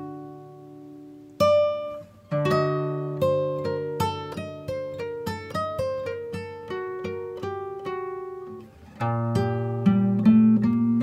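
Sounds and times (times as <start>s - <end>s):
acoustic guitar plucking: 0.0s - 11.0s.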